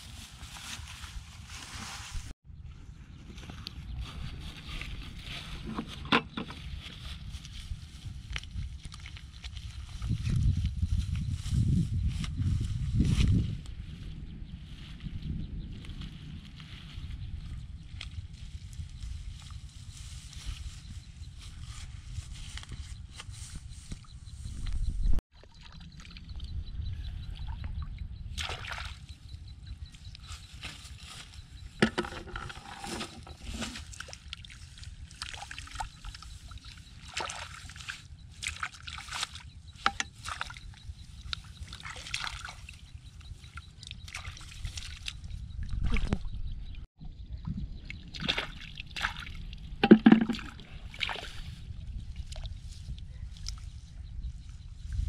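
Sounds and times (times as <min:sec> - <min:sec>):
hands sloshing through mud: 0:28.4 - 0:29.0, 0:33.5 - 0:39.4, 0:41.4 - 0:42.8, 0:43.8 - 0:45.2, 0:48.1 - 0:51.5
water splashes: 0:28.4 - 0:29.1, 0:48.0 - 0:51.5.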